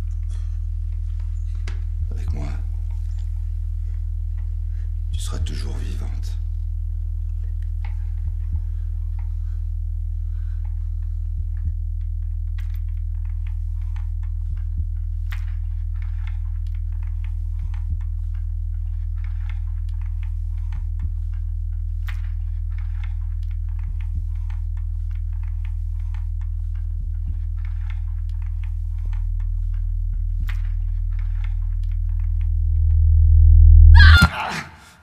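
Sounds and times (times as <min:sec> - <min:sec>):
low droning hum: 0:00.0 - 0:35.0.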